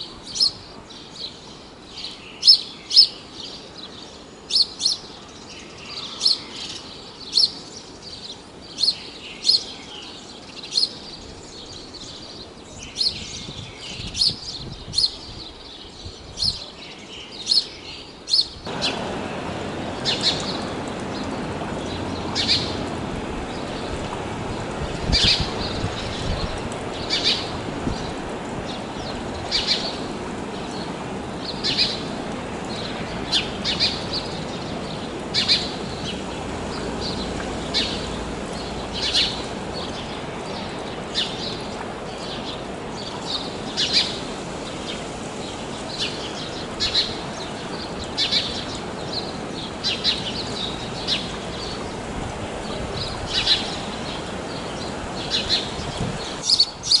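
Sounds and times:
sparrow chirping: 0:00.3 - 0:03.6, 0:04.5 - 0:19.0, 0:19.9 - 0:22.8, 0:25.0 - 0:32.1, 0:32.7 - 0:41.6, 0:42.2 - 0:44.2, 0:45.9 - 0:51.9, 0:53.0 - 0:57.0
steady rushing background noise: 0:18.6 - 0:57.0.

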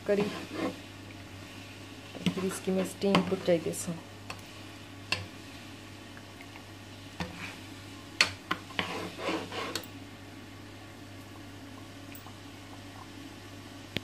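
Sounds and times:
low steady hum: 0:00.0 - 0:14.0
ladle scraping through gravy: 0:08.7 - 0:09.8.

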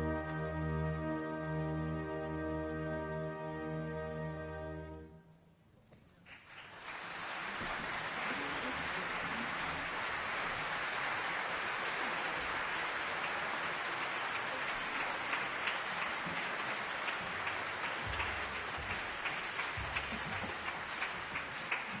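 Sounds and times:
audience applauding: 0:06.2 - 0:22.0.

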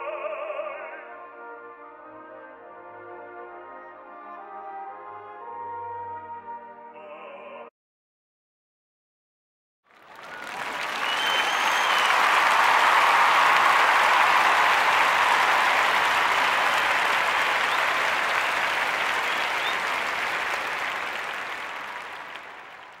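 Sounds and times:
applause: 0:09.9 - 0:23.0.

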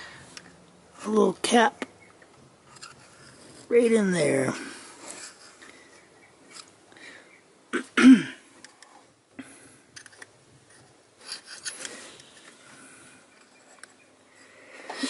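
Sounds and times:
metal pick scraping and clicking: 0:02.7 - 0:03.6, 0:09.9 - 0:12.6
person coughing: 0:07.7 - 0:08.4.

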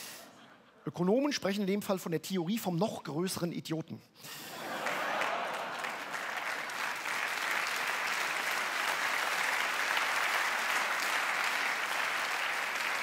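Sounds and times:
audience applauding: 0:04.7 - 0:13.0.

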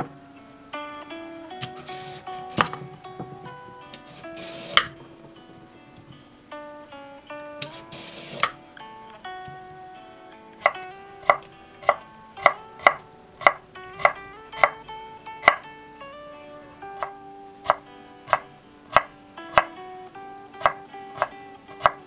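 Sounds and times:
soft instrumental music: 0:00.0 - 0:22.0
knife chopping on wooden board: 0:10.6 - 0:14.8, 0:15.4 - 0:15.6, 0:17.0 - 0:19.8, 0:20.6 - 0:22.0.

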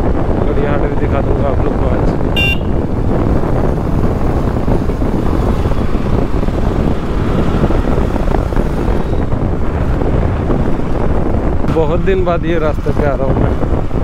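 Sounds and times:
road and engine rumble: 0:00.0 - 0:14.0
wind buffeting microphone: 0:00.0 - 0:14.0
short high-pitched beep: 0:02.4 - 0:02.7.

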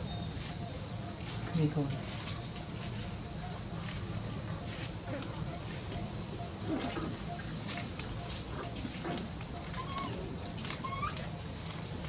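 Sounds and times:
high-pitched insect drone: 0:00.0 - 0:12.0
faint rising calls: 0:05.9 - 0:11.5.

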